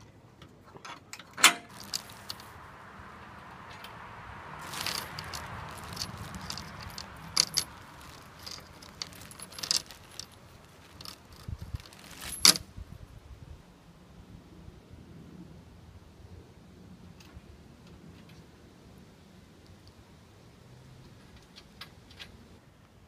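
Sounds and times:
metal hardware clinking: 0:01.2 - 0:02.6, 0:04.6 - 0:12.6
plastic bags crinkling: 0:01.7 - 0:02.6, 0:04.6 - 0:12.6.

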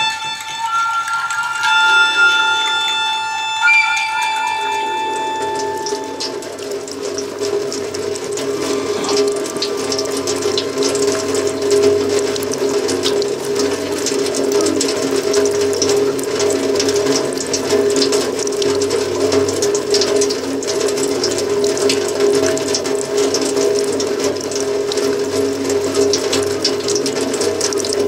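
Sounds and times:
steady drone: 0:00.0 - 0:13.4.

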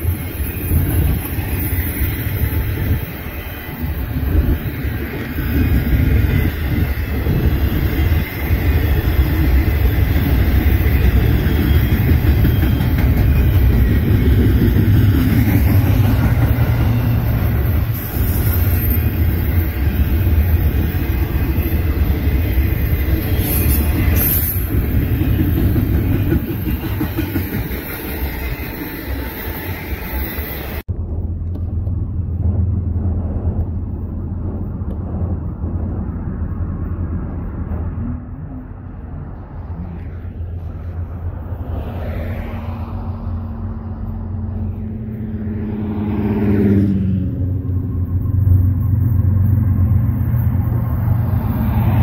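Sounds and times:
freight train rumbling on rails: 0:00.0 - 0:52.0
dull low rumble: 0:30.9 - 0:45.2.

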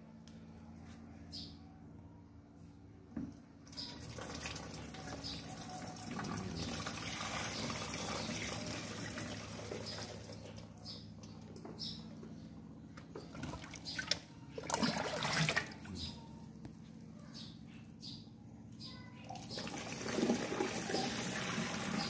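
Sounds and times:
liquid pouring into a tank: 0:03.9 - 0:10.7, 0:13.3 - 0:15.8, 0:19.4 - 0:22.0.

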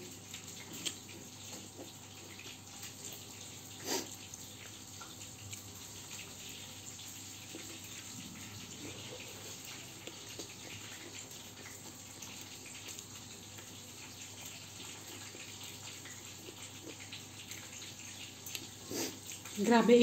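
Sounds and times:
person chewing: 0:00.3 - 0:02.9, 0:08.8 - 0:13.7, 0:15.0 - 0:19.5.

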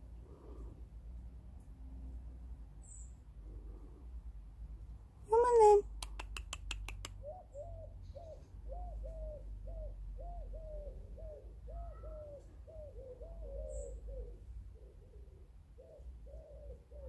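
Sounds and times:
pigeon cooing: 0:06.2 - 0:17.0.

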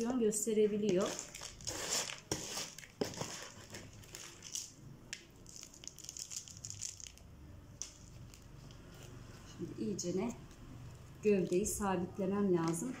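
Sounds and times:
potting mix rustling and scraping: 0:00.8 - 0:04.6.

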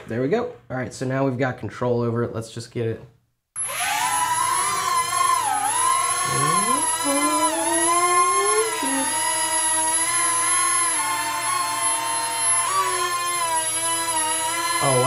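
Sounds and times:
toy quadcopter rotors whining: 0:03.6 - 0:15.0.

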